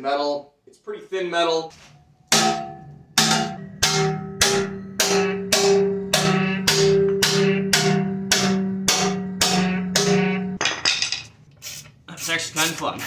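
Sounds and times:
metal plate ringing: 0:02.0 - 0:11.2
hammer striking metal plate: 0:02.3 - 0:11.3.

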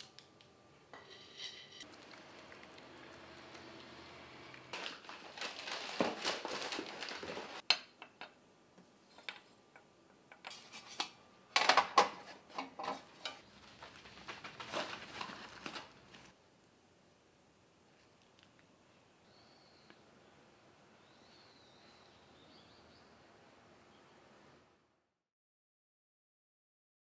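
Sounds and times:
rustling: 0:04.5 - 0:07.6, 0:12.2 - 0:16.4.

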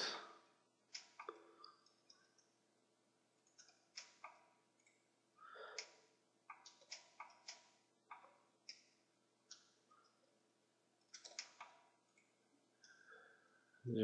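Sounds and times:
computer mouse clicks: 0:00.9 - 0:02.5, 0:03.5 - 0:05.0, 0:05.8 - 0:10.2, 0:11.0 - 0:13.0.

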